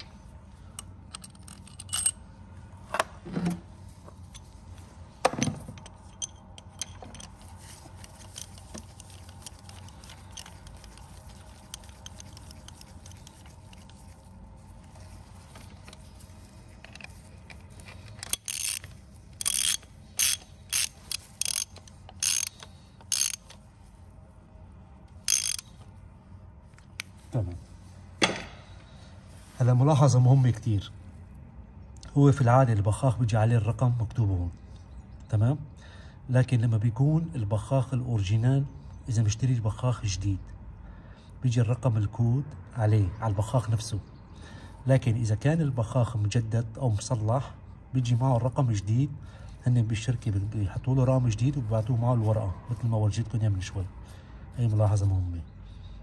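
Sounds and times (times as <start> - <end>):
hand tools clicking on metal: 0.8 - 2.2, 5.7 - 14.0, 17.9 - 23.6, 25.3 - 25.7.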